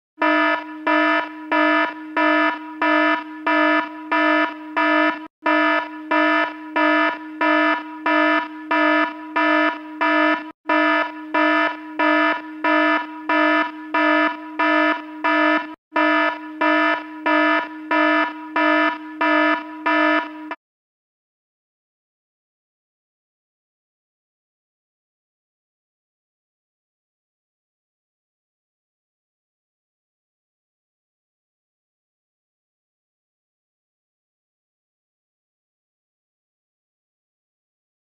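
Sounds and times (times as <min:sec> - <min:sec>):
pulsing fire alarm tone: 0:00.2 - 0:20.6.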